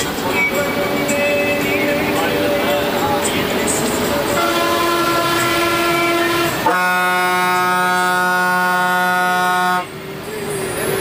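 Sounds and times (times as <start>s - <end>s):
bus horn long blast: 4.2s - 10.0s.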